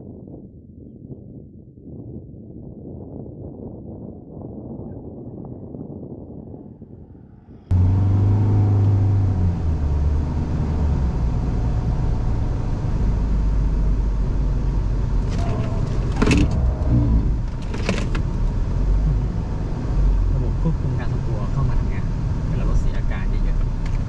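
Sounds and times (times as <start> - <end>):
pickup truck engine accelerating: 7.7 - 24.0.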